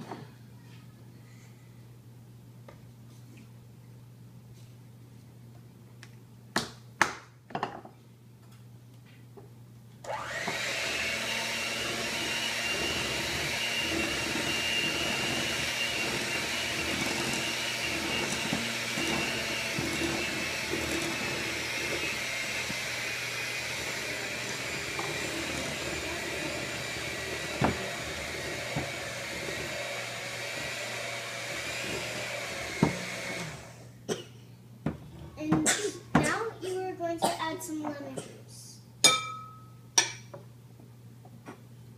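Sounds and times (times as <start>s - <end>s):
electric hand mixer whirring: 10.1s - 34.0s.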